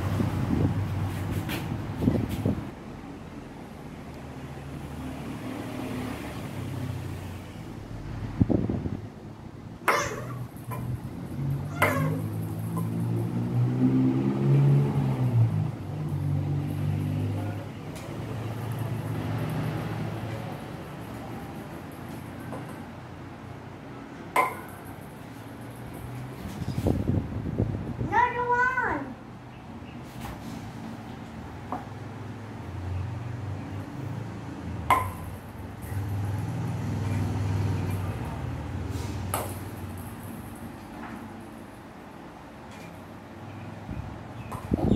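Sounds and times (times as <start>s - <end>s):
paddle striking ping-pong ball: 24.4s - 24.9s, 34.9s - 35.3s.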